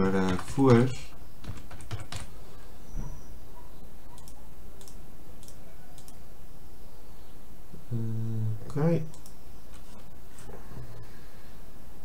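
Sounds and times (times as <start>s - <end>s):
keyboard typing: 0.0s - 2.3s, 4.2s - 6.2s
low background noise: 0.0s - 12.0s
mouse clicks: 4.2s - 6.2s.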